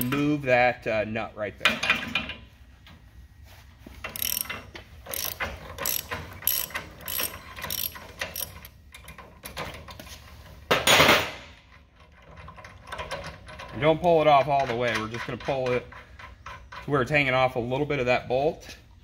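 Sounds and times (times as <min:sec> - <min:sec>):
ratchet wrench clicking: 0:04.1 - 0:09.2.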